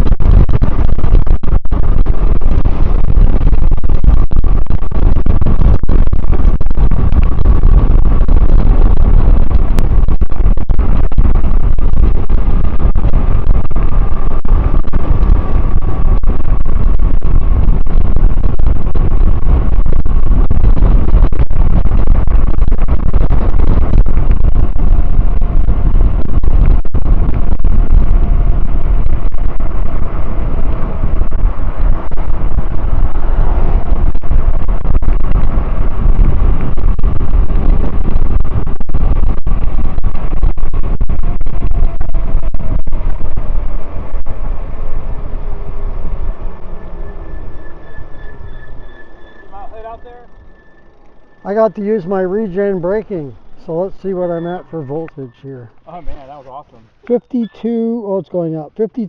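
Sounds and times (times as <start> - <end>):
wind buffeting microphone: 0.0 - 59.0
faint high whine: 40.4 - 59.0.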